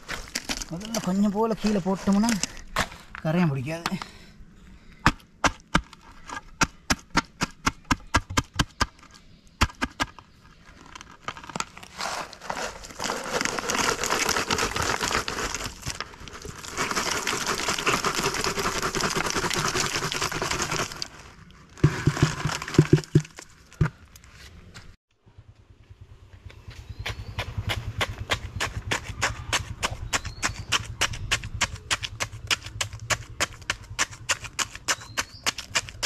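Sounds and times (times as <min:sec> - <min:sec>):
dry granular mix pouring: 0:11.4 - 0:23.4.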